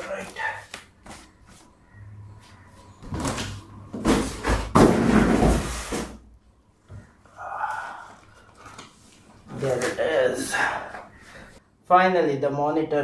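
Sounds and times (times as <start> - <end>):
cardboard box scraping and thumping: 3.3 - 6.2
foam wrap rustling: 8.4 - 10.1.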